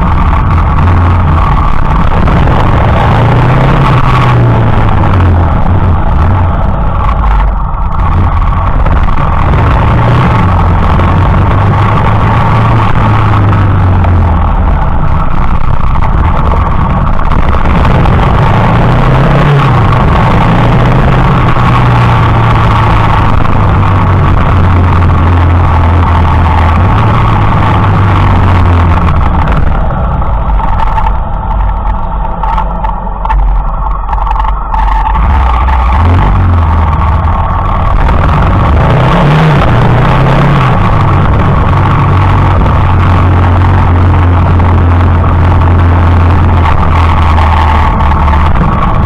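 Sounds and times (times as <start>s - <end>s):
motorcycle engine running: 0.0s - 49.0s
road and wind noise: 0.0s - 49.0s.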